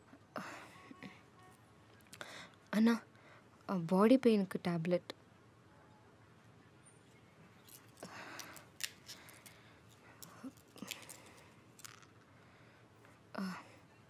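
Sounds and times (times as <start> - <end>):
rustling of blister strip: 7.5 - 12.2
scissors snipping plastic: 7.7 - 11.2.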